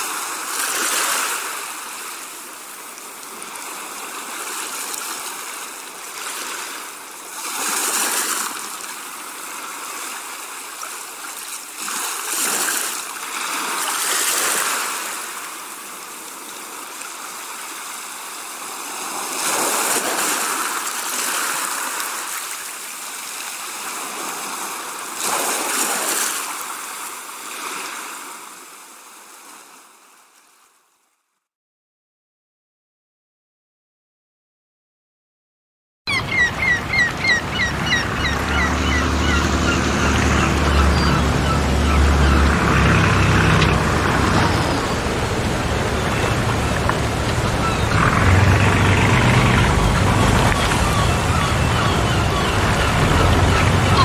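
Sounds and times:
wind and road noise in car: 36.9 - 54.0.

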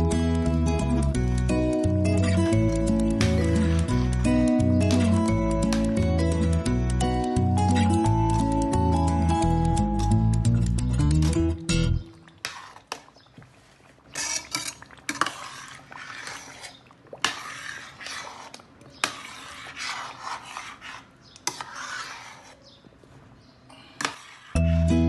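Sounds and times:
spoon scraping through stew: 2.1 - 5.9, 12.4 - 23.0, 23.9 - 24.9.

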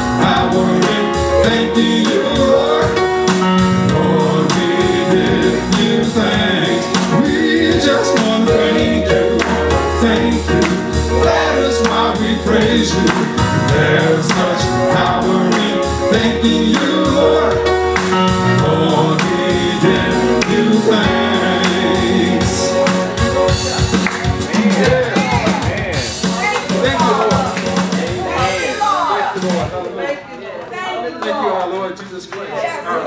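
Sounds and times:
people singing: 0.0 - 26.0
church band playing: 0.0 - 30.0.

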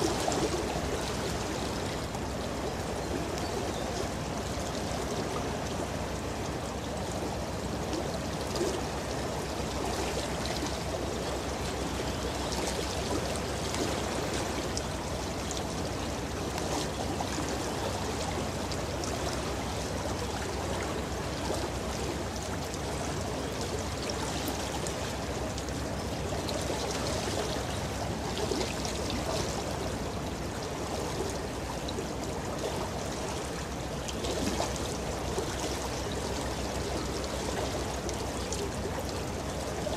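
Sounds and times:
river water lapping at shore: 0.0 - 39.9.

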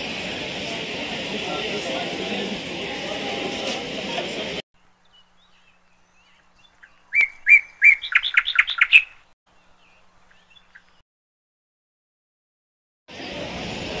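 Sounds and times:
bird whistling call: 5.5 - 9.2.

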